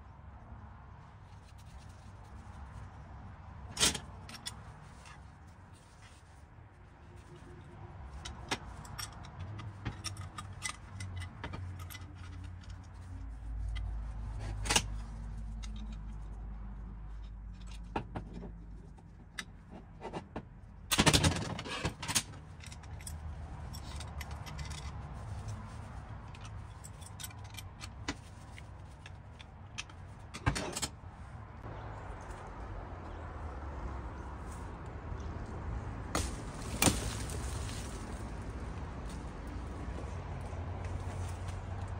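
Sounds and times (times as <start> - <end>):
metal tools clinking and scraping: 8.1 - 16.2, 21.6 - 30.9.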